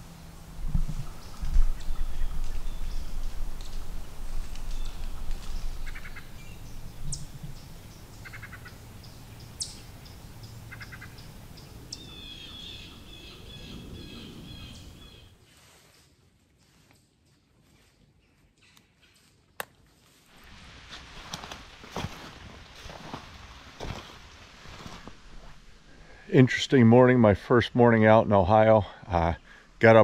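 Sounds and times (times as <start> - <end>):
low rumble: 0.0 - 8.2
songbirds calling: 0.0 - 15.4
bird chattering calls: 5.6 - 7.3, 8.1 - 8.8, 10.7 - 15.3.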